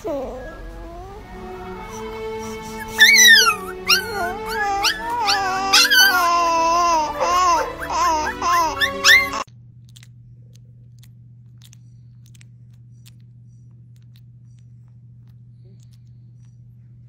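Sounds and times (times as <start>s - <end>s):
puppies whining and yelping: 0.0s - 9.5s.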